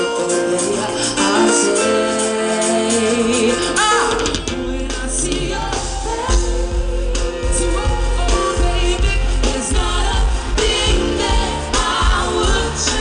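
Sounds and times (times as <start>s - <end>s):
live reggae band with singing: 0.0s - 13.0s
heavy bass beat: 4.5s - 13.0s.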